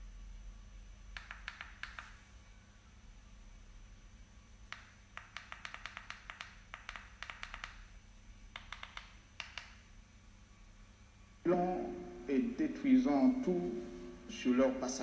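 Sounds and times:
sharp clicks: 0:01.2 - 0:02.2, 0:04.7 - 0:07.9, 0:08.5 - 0:09.9.

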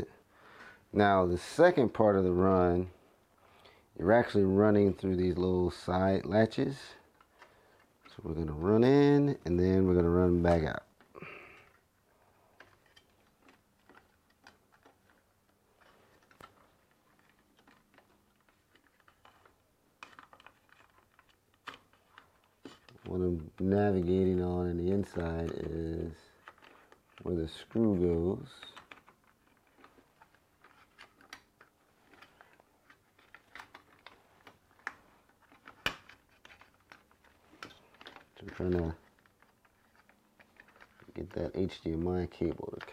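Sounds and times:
cables clicking in plastic latches: 0:12.4 - 0:42.9.

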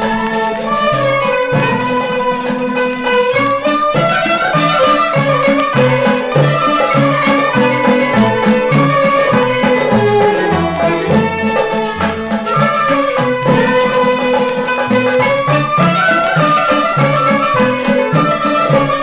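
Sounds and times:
instrumental melody: 0:03.5 - 0:18.7.

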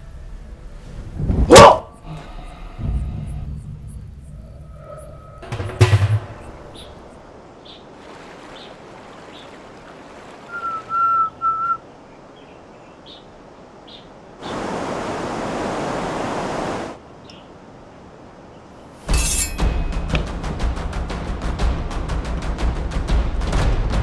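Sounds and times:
riverside ambience: 0:00.0 - 0:14.6
bird chirps: 0:06.3 - 0:07.8
whistle notes: 0:10.5 - 0:11.8.

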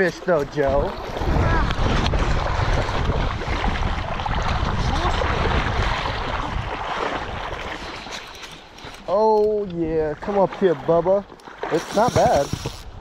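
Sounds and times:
rushing splashing river water: 0:00.0 - 0:09.0
wind rumbling on microphone: 0:00.6 - 0:08.2.

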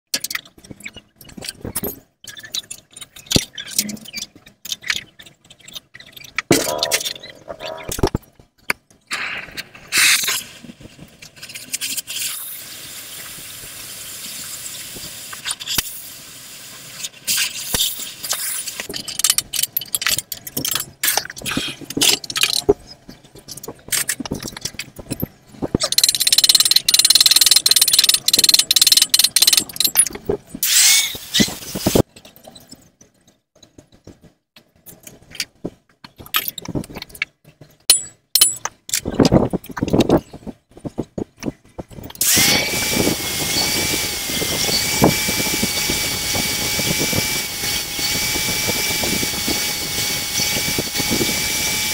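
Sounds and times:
metal clinking on metal: 0:37.9 - 0:38.7.

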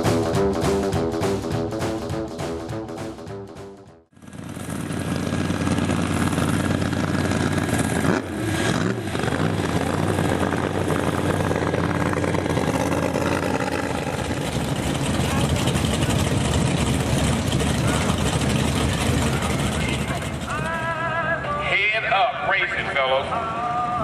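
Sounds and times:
music: 0:00.0 - 0:04.1
drag racing engines: 0:04.2 - 0:24.0.

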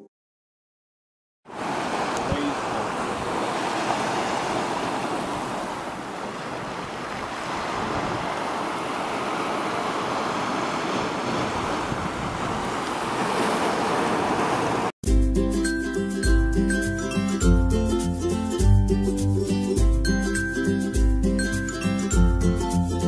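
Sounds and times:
waves washing against a seawall: 0:01.5 - 0:14.9.

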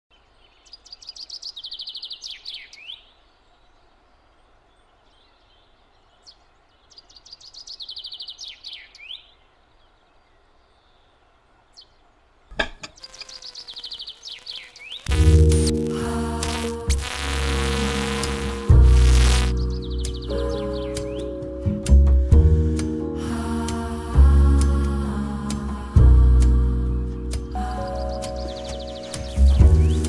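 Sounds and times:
songbird trilling song: 0:00.1 - 0:12.1, 0:12.9 - 0:15.8, 0:16.5 - 0:21.4, 0:27.8 - 0:30.0
faint background noise: 0:00.1 - 0:21.5.

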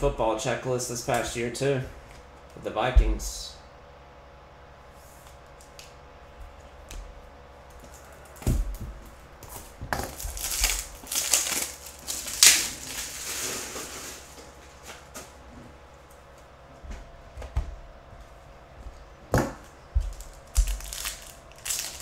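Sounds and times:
plastic crinkling and rustling: 0:09.4 - 0:15.0, 0:20.1 - 0:22.0.

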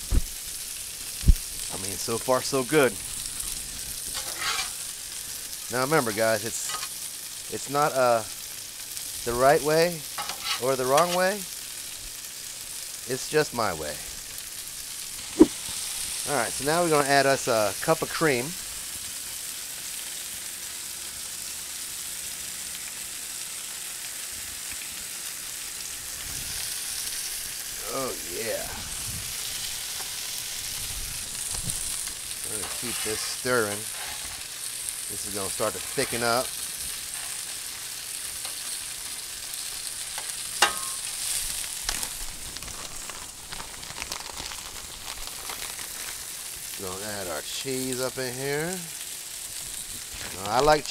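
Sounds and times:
food sizzling on griddle: 0:00.0 - 0:50.9
sharp clink: 0:40.6 - 0:41.0.

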